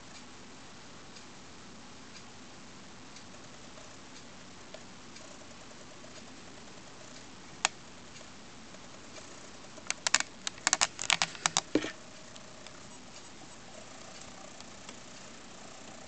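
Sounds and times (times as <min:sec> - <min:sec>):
sharp clicks and taps: 0:09.8 - 0:12.0.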